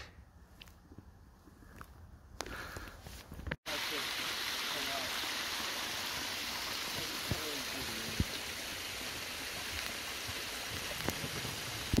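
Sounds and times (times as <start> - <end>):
water trickling into pool: 3.7 - 12.0.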